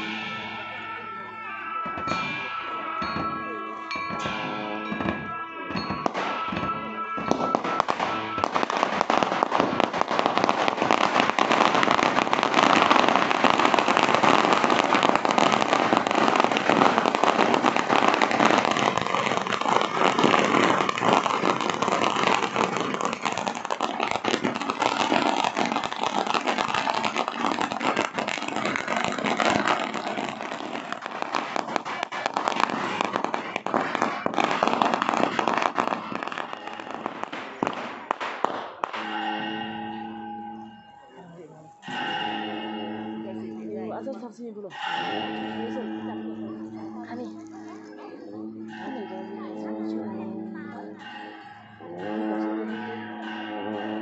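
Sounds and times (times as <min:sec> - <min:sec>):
firecrackers crackling: 0:00.0 - 0:54.0
ringing tone: 0:39.0 - 0:54.0.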